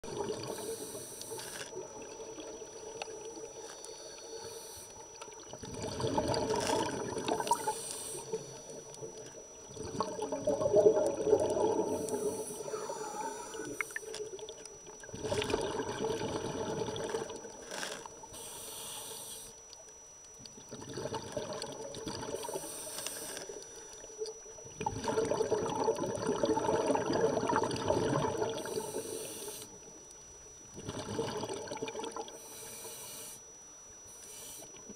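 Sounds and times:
diver exhaling bubbles underwater: 0.0 - 0.9, 5.3 - 18.1, 20.6 - 22.6, 24.8 - 29.2, 30.7 - 32.4
regulator inhalation hiss: 0.4 - 1.8, 3.6 - 5.1, 7.4 - 8.9, 11.9 - 14.2, 17.6 - 19.6, 22.3 - 24.0, 28.6 - 29.8, 32.3 - 34.9.

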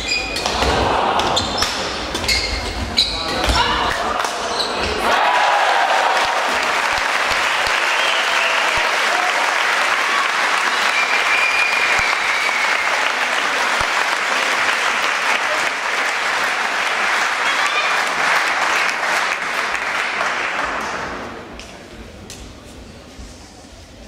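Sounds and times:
people shouting: 0.5 - 1.5, 5.0 - 6.7
crowd applauding: 5.1 - 21.1.

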